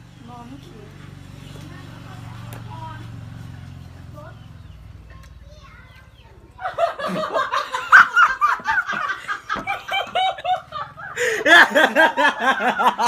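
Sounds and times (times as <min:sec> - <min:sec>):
person laughing hard: 0:06.6 - 0:13.0.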